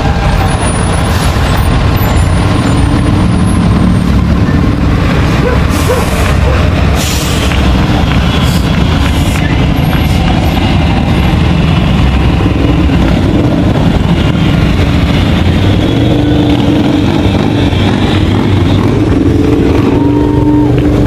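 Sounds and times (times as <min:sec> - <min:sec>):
motorcycles riding past: 0:07.6 - 0:21.0.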